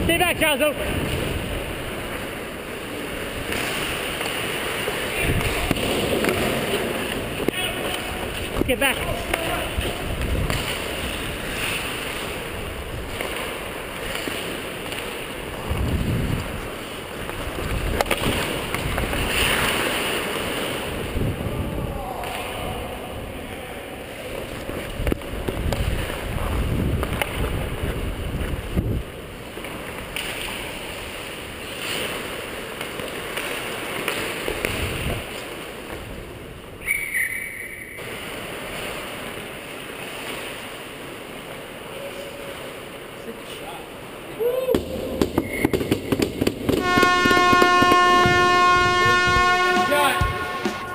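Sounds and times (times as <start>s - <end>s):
wind rushing over microphone: 5.1s - 7.5s, 8.1s - 11.6s, 15.5s - 19.6s, 20.8s - 23.5s, 24.5s - 29.2s, 34.6s - 35.3s, 48.1s - 50.9s.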